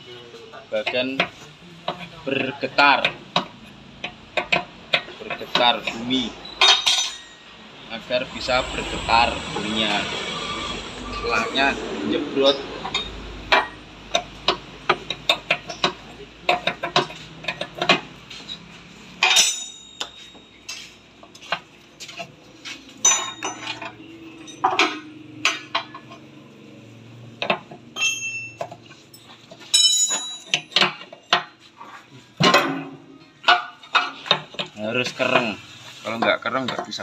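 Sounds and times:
hand tools clinking on metal: 0.7s - 7.5s, 12.5s - 26.4s, 27.4s - 35.5s.

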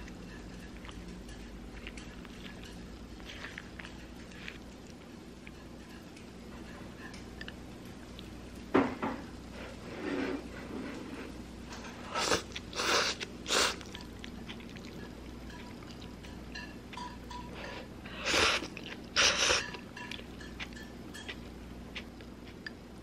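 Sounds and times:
faint eating clicks: 0.0s - 8.7s, 12.5s - 17.5s, 18.6s - 23.0s.

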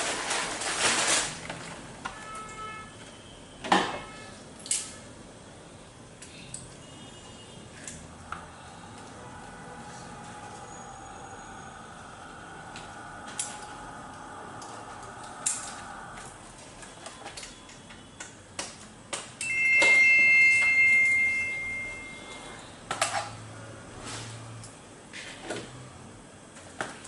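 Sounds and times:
electronic two-tone beep: 19.5s - 22.5s.

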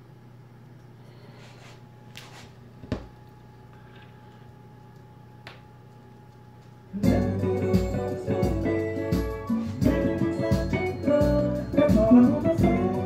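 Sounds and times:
loud record music: 7.0s - 13.0s.

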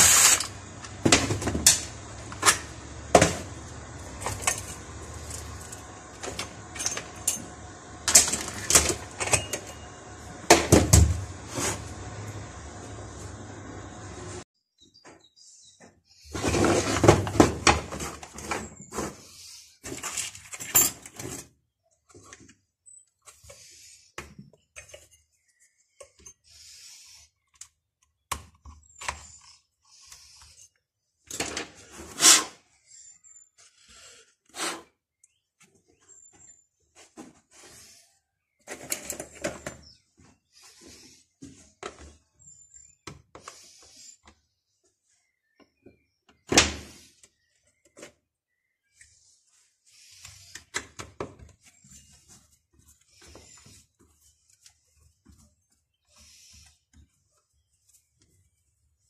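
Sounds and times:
metal parts set down on bench: 4.2s - 9.8s.

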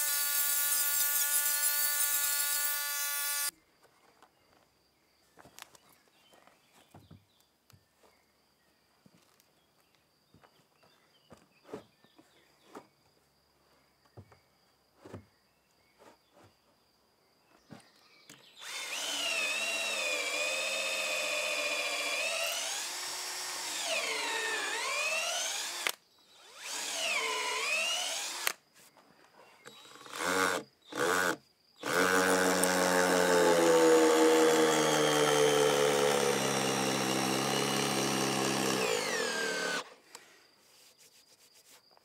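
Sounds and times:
cordless drill boring into wood: 0.0s - 3.5s, 18.6s - 28.6s, 29.7s - 39.9s.

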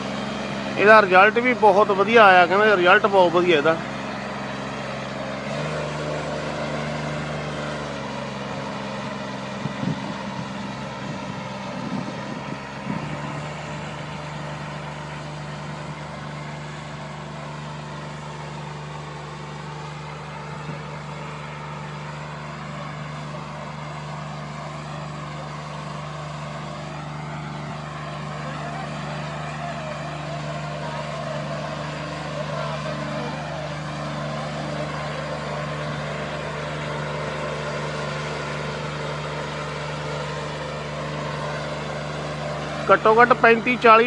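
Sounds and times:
sprayer engine running: 0.0s - 44.0s.

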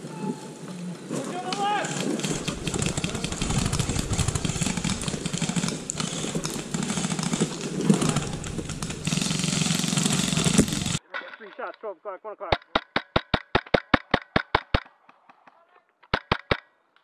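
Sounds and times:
low rumble: 2.2s - 11.0s.

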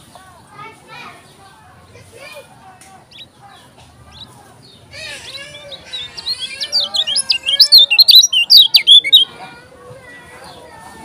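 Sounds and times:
bird chirping high notes: 5.8s - 9.3s.

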